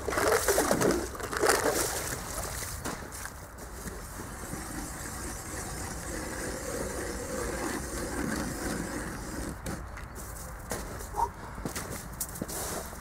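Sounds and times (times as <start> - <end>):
ice auger grinding through ice: 3.6 - 9.8.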